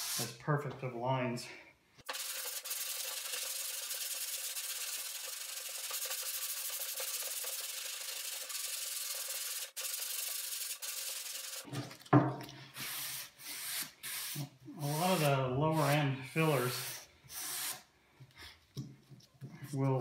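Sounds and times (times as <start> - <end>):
sandpaper sanding strokes: 0.0 - 0.4, 2.1 - 11.7, 12.9 - 17.8.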